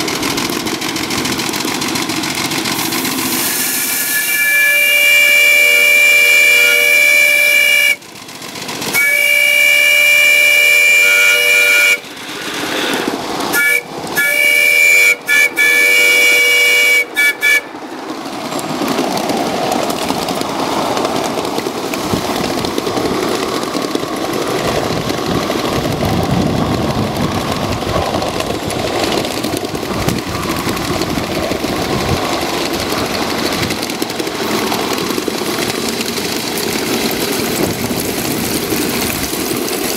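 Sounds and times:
locomotive running noise: 0.0s - 39.9s
steam whistle blasts: 3.3s - 8.0s, 8.9s - 17.8s.

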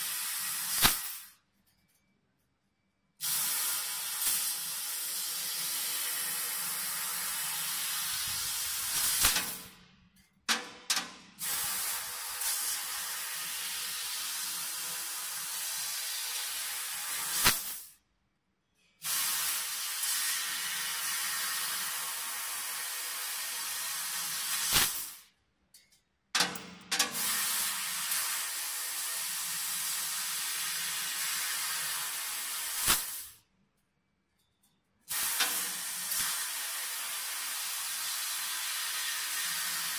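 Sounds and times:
hiss of laser cutter gas jet: 0.0s - 1.4s, 3.2s - 9.8s, 11.4s - 18.0s, 19.0s - 25.3s, 27.2s - 33.4s, 35.1s - 39.9s
molten sparks spraying: 0.0s - 1.4s, 3.2s - 9.8s, 11.4s - 18.0s, 19.0s - 25.3s, 27.1s - 33.4s, 35.1s - 39.9s
sharp gas pop: 0.8s - 1.3s, 8.9s - 9.7s, 17.4s - 17.9s, 24.7s - 25.2s, 32.8s - 33.4s.

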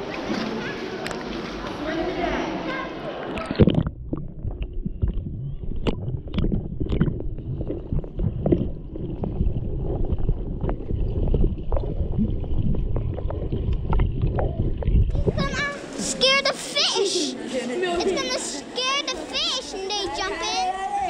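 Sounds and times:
underwater rumble of moving water: 3.2s - 15.9s
water rushing over camera: 3.2s - 17.3s
bubbly clicks and knocks: 3.3s - 15.5s.

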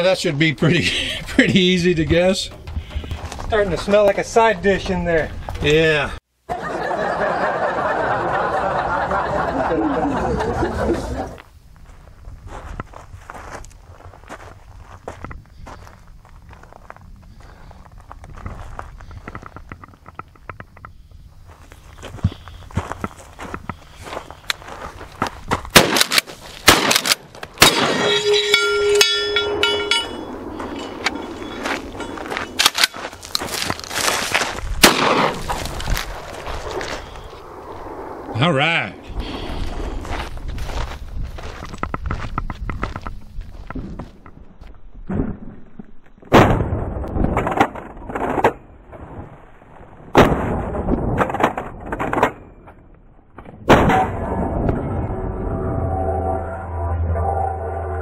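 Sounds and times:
shotgun blasts: 25.7s - 28.2s, 34.8s - 35.5s, 46.3s - 47.1s, 50.1s - 51.4s, 53.6s - 54.6s
steel plate target ringing: 27.6s - 32.6s.

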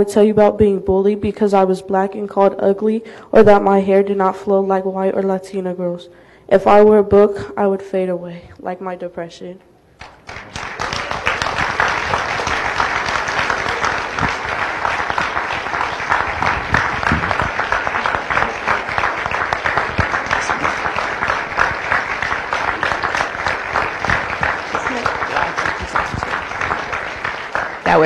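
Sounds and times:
large audience applauding: 10.0s - 28.0s.

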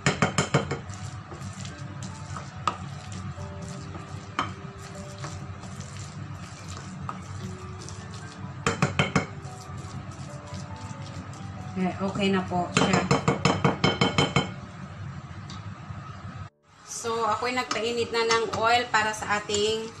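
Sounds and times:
wooden spoon stirring thick batter: 0.7s - 12.2s.

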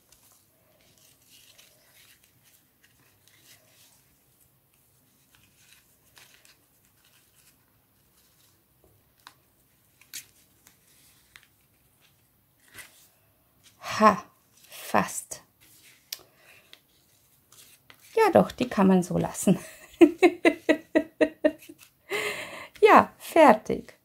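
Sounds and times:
ribbon rustling against paper: 0.0s - 20.8s, 21.4s - 22.0s.

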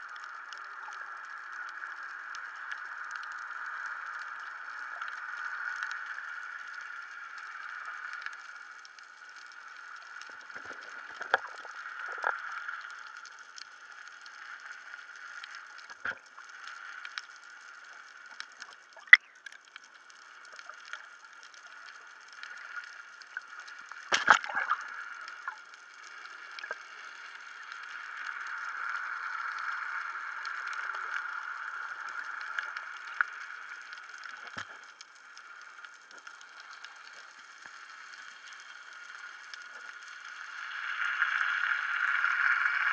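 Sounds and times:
faint crackling ticks: 0.0s - 42.9s
muffled underwater hiss: 0.0s - 42.9s.

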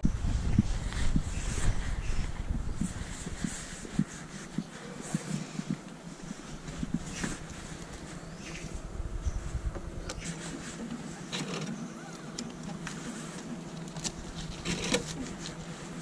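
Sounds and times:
cash machine whirring: 11.1s - 15.4s.

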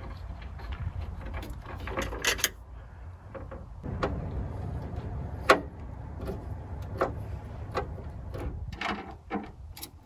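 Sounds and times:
tools and hardware clicking: 5.4s - 10.0s.

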